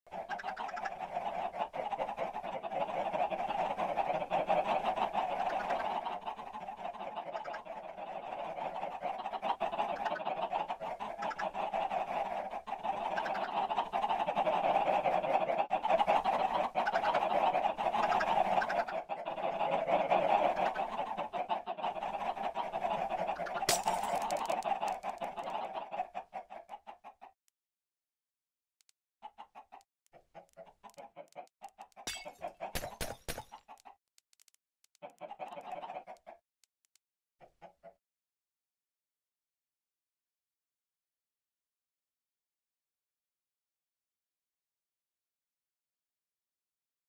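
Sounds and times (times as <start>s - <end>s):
chickens clucking: 0.1s - 27.4s, 29.2s - 36.4s, 37.4s - 38.0s.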